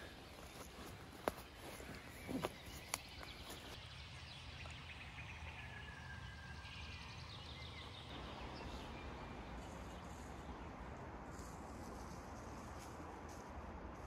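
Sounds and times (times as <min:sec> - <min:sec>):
soft chirping: 0:00.0 - 0:03.8.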